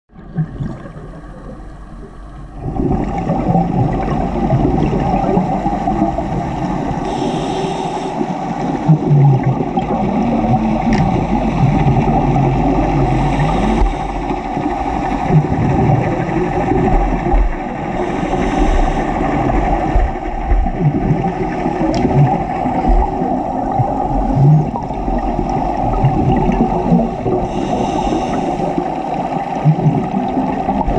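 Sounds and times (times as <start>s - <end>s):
exhaled bubbles rushing: 0.1s - 7.1s, 8.2s - 30.9s
muffled underwater rumble: 0.1s - 30.9s
diver breathing through regulator: 6.4s - 9.1s, 12.8s - 15.2s, 17.8s - 23.3s, 27.3s - 29.0s.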